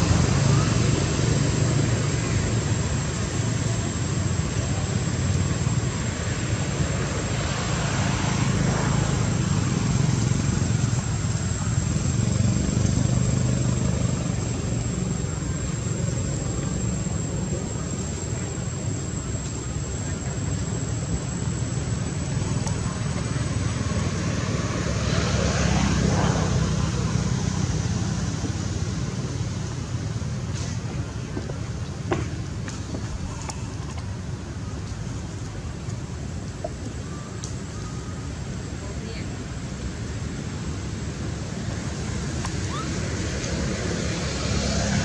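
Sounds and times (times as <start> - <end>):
low mechanical drone: 0.0 - 45.0.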